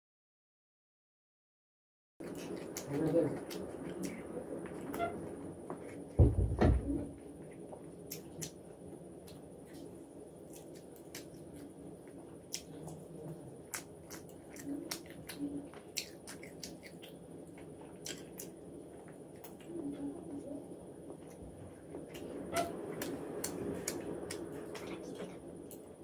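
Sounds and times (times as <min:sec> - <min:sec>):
wet chewing: 0:02.2 - 0:06.1, 0:07.4 - 0:08.6, 0:09.2 - 0:20.4, 0:21.1 - 0:25.9
loud low thump: 0:06.2 - 0:07.1
mouth clicks and smacks: 0:13.7 - 0:17.2, 0:18.0 - 0:18.6.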